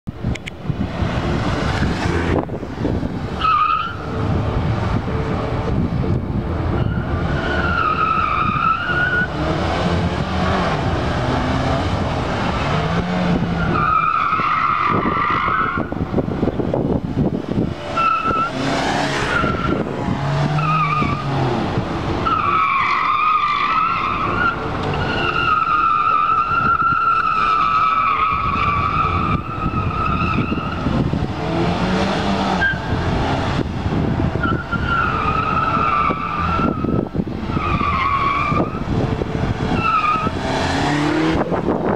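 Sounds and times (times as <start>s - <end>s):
car engine revving: 0.7s - 26.8s, 27.4s - 41.9s
tyres squealing: 20.5s - 21.4s, 22.2s - 30.9s, 34.4s - 38.8s, 39.7s - 40.5s.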